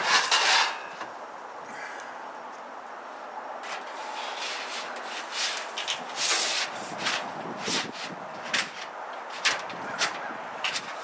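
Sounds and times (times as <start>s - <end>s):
panel scraping along trim: 0.0s - 1.0s, 3.6s - 11.0s.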